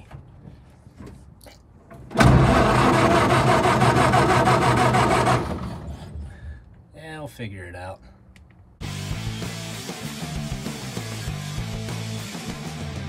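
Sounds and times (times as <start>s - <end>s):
starter motor cranking engine: 2.1s - 6.2s.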